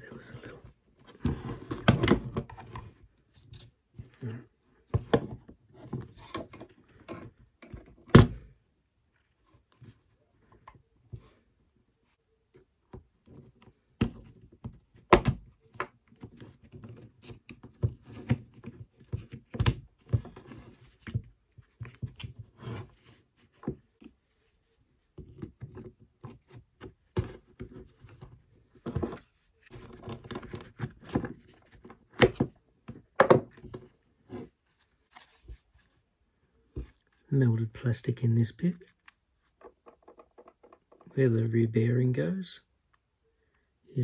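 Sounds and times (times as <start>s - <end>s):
plastic drill parts knocking and clicking: 39.6s - 41.1s.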